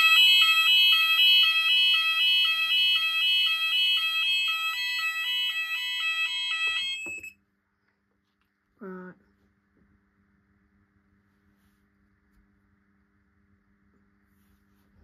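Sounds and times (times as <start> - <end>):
fire alarm two-tone warble: 0.0 - 7.4.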